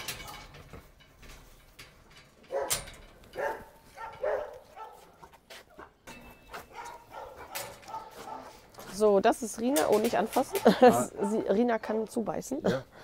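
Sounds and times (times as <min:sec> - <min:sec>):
dog barking: 0:02.5 - 0:02.8, 0:03.4 - 0:05.2, 0:06.7 - 0:08.6.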